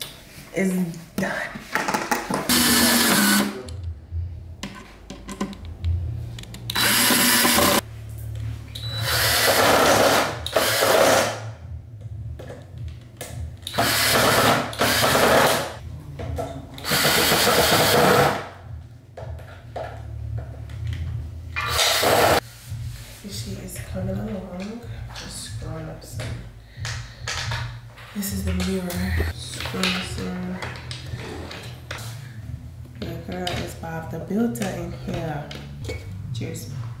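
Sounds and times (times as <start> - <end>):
cordless drill driving screws: 2.5 - 3.6, 6.7 - 7.8, 9.0 - 11.4, 13.7 - 15.7.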